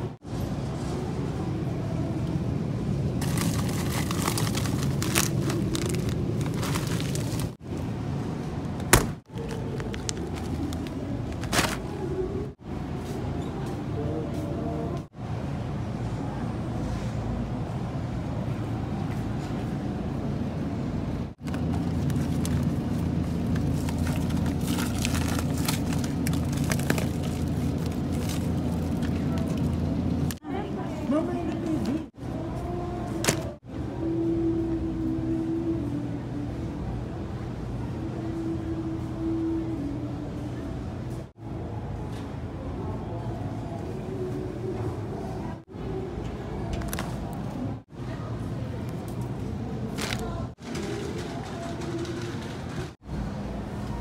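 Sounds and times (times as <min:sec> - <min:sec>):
low freezer hum: 0:00.0 - 0:54.0
plastic bag crinkling: 0:03.2 - 0:07.6, 0:09.3 - 0:12.0, 0:21.4 - 0:30.2.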